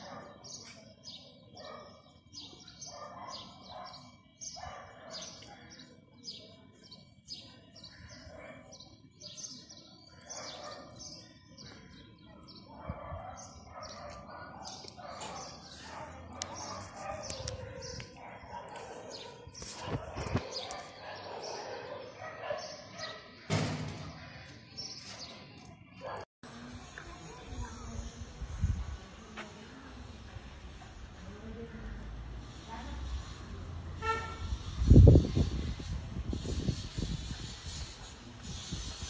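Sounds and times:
birds chirping: 0.0 - 23.5.

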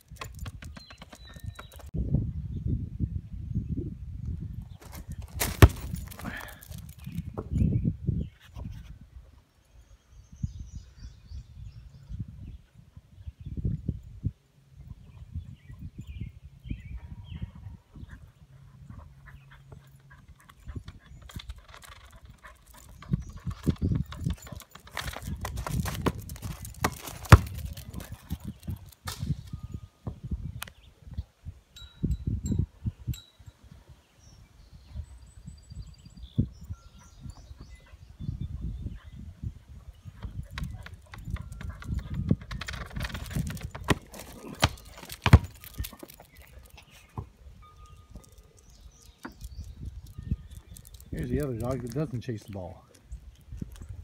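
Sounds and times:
ball rolling on pavement: 0.0 - 1.9, 4.8 - 7.6, 19.7 - 29.1, 40.2 - 47.3
dog paws scuffing and clicking: 4.8 - 7.2, 19.6 - 29.0, 40.2 - 47.2
ball bouncing: 5.4 - 7.5, 24.8 - 28.1, 41.9 - 46.2
light jingling: 19.9 - 29.0.

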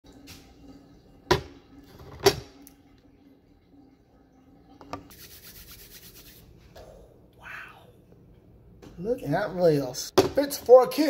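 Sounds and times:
fast scraping rub: 5.1 - 6.5.

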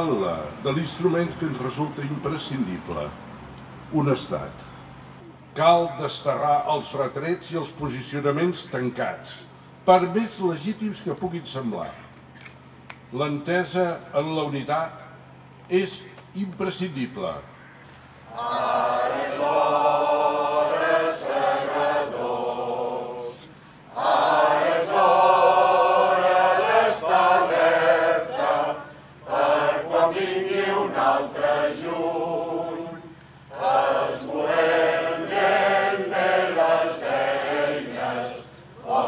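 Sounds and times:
group of people singing: 18.3 - 39.0
singers breathing: 23.4 - 24.0, 28.8 - 29.3.

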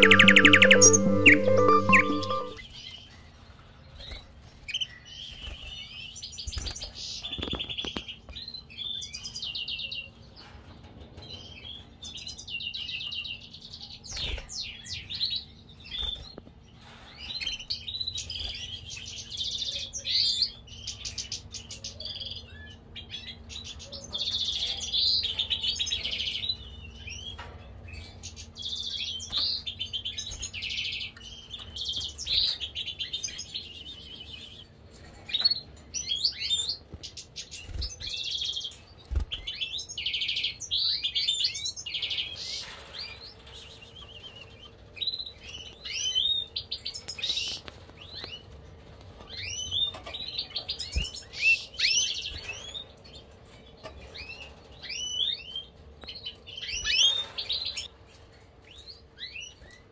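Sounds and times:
finches chirping and singing: 0.0 - 2.6.

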